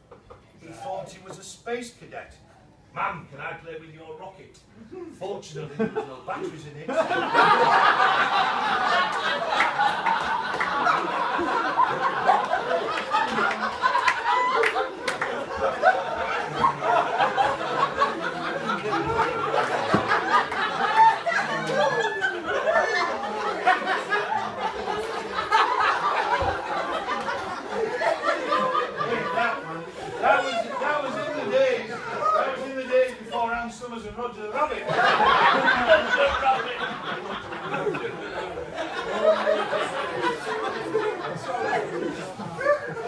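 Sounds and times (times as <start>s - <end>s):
crowd laughing loudly: 5.7s - 33.5s, 34.6s - 43.0s
overlapping voices: 7.0s - 31.1s
hands clapping: 9.0s - 11.1s, 12.3s - 15.6s.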